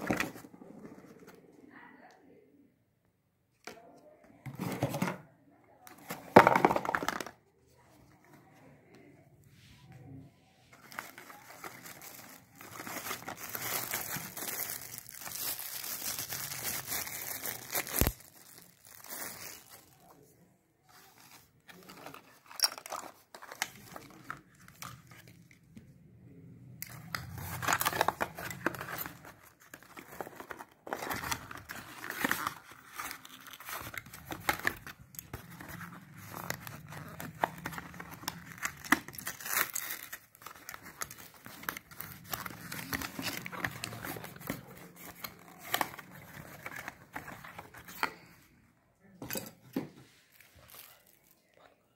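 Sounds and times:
cardboard and plastic wrap rustling: 0.0s - 1.4s, 10.7s - 20.0s, 26.8s - 48.1s.

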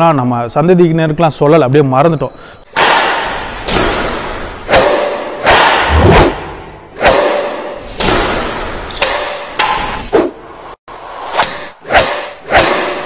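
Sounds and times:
heavy impact hits: 5.8s - 7.0s
deep boom: 5.9s - 6.9s.

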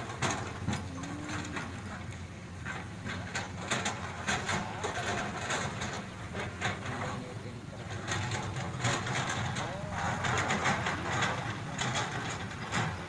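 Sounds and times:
bucket clanking among rocks: 0.0s - 13.0s
excavator diesel engine running: 0.0s - 13.0s.

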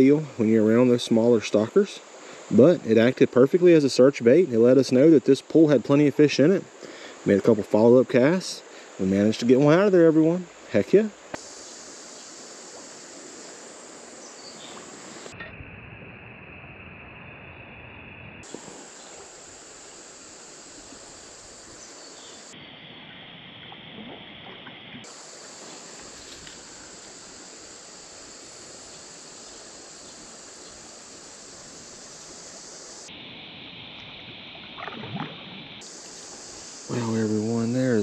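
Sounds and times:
creek water flowing: 23.7s - 33.1s, 33.9s - 38.0s
fish splashing at surface: 34.7s - 35.6s.

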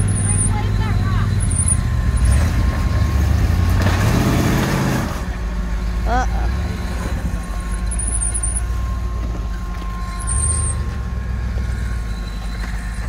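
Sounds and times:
buggy engine running: 0.0s - 13.0s
brief high whines: 6.6s - 13.0s.

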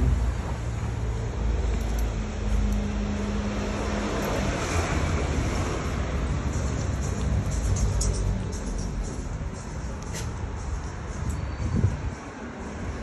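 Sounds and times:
rumble of traffic: 0.0s - 13.0s
wind noise on microphone: 10.2s - 13.0s.

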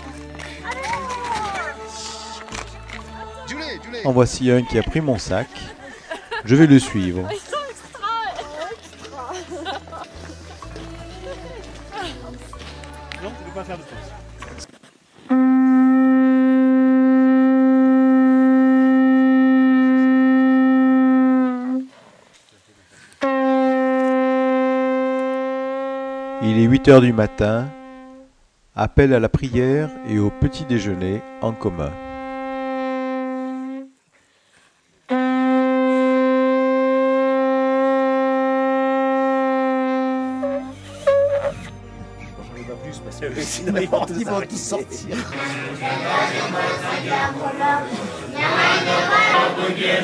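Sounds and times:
conch shell trumpet note: 15.3s - 21.9s, 23.2s - 28.4s, 29.6s - 34.0s, 35.1s - 42.0s.

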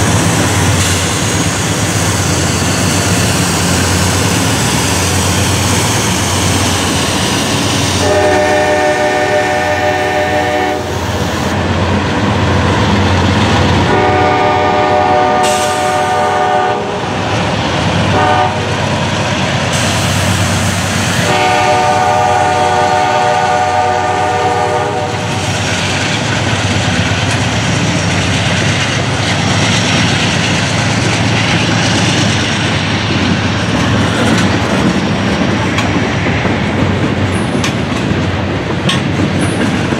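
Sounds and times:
locomotive engines rumbling: 0.0s - 39.9s
locomotive horn: 8.0s - 11.0s, 13.8s - 17.2s, 18.1s - 18.8s, 21.2s - 25.4s
train wheels clacking over rail joints: 18.0s - 39.9s.

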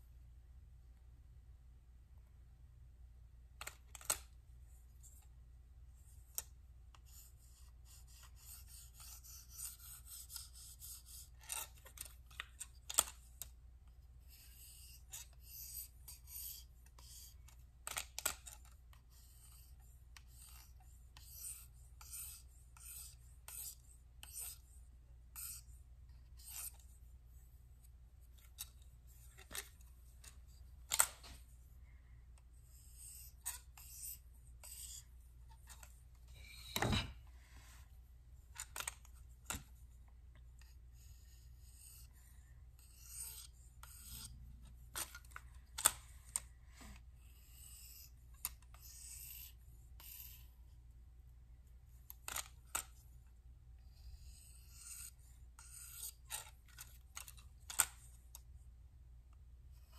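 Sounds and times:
knife scraping on hone: 8.2s - 12.1s, 20.3s - 24.6s, 26.4s - 26.8s, 32.7s - 37.1s, 42.8s - 44.4s, 54.2s - 57.3s.

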